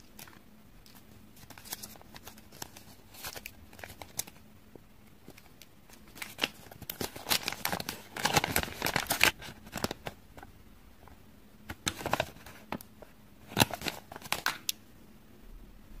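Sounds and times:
paper crinkling and rustling: 0:00.0 - 0:04.4, 0:05.2 - 0:10.5, 0:11.7 - 0:14.7.

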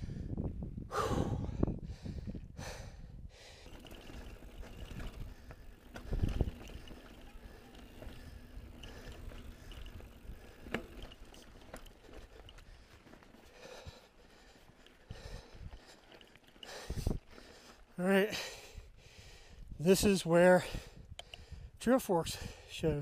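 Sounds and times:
bike tyres rolling on dirt: 0:02.2 - 0:20.8
bike rattling: 0:03.4 - 0:18.8.

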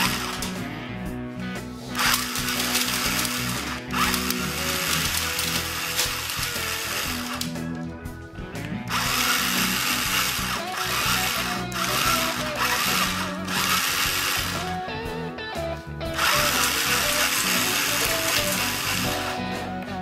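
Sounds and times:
toy machine gun whirring rattle: 0:00.0 - 0:00.6, 0:02.0 - 0:07.5, 0:08.9 - 0:14.8, 0:16.1 - 0:19.4
background music: 0:00.0 - 0:20.0.

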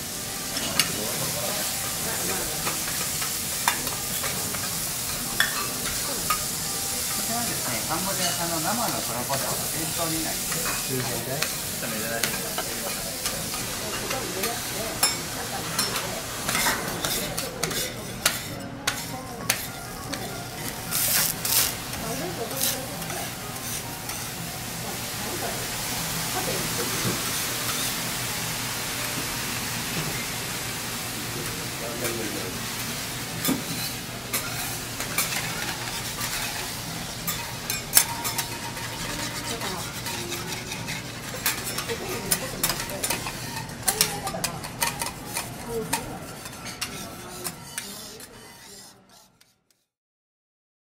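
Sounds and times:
food sizzling on a griddle: 0:00.0 - 0:49.4
metal utensils scraping and clinking: 0:00.5 - 0:24.4, 0:33.4 - 0:49.9
metal utensils clicking: 0:37.3 - 0:48.4.

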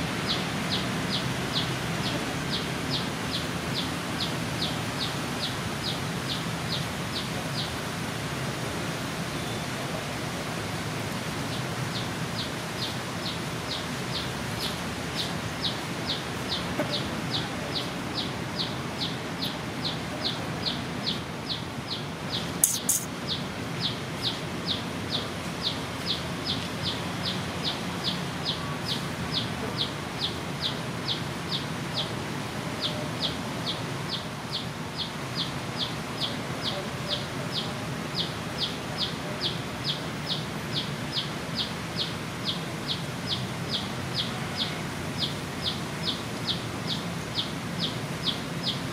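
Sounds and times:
sharp click: 0:22.6 - 0:23.1
small animal high chirping: 0:22.6 - 0:23.1.

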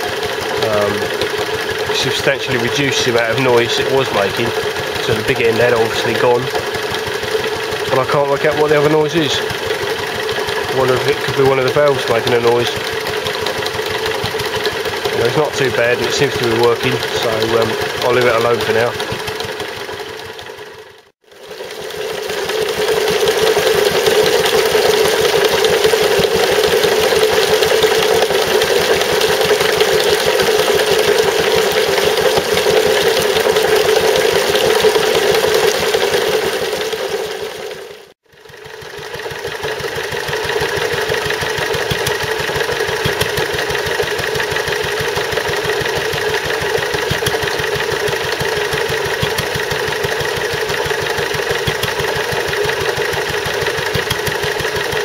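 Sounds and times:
pump knocking: 0:00.0 - 0:55.0
stationary engine running: 0:00.0 - 0:55.0
water pouring into a tub: 0:21.4 - 0:37.8.

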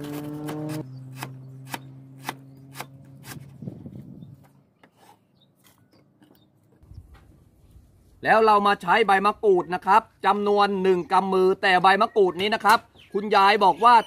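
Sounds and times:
cleaver chopping on wooden board: 0:00.0 - 0:03.5.

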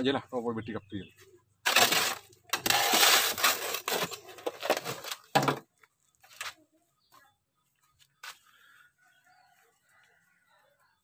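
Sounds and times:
shovel scraping metal wheelbarrow: 0:01.6 - 0:05.6.

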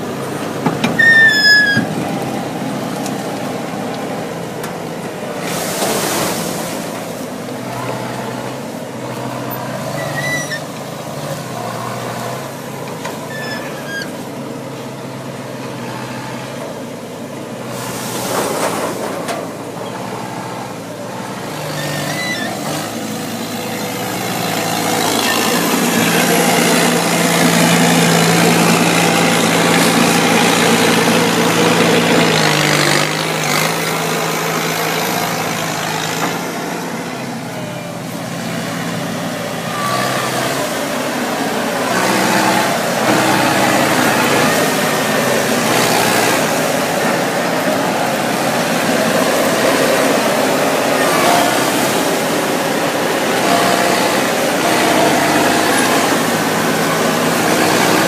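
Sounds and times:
harvester engine running: 0:00.0 - 0:58.0.

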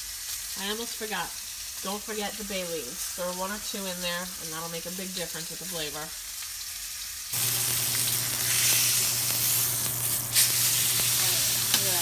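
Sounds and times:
meat sizzling in a skillet: 0:00.0 - 0:12.0.

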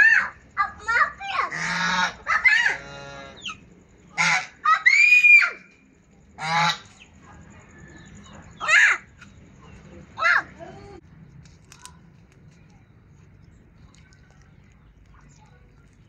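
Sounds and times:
geese honking: 0:01.4 - 0:05.0, 0:06.4 - 0:07.0.

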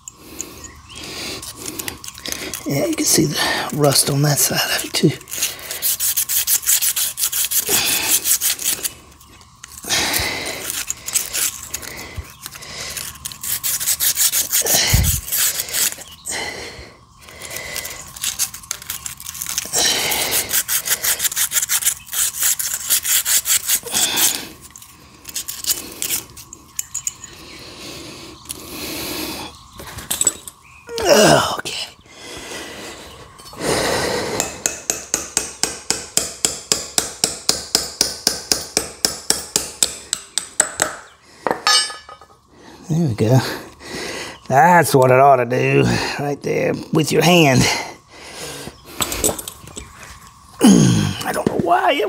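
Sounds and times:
sandpaper scraping metal shaft: 0:00.0 - 0:16.3, 0:17.3 - 0:27.4.

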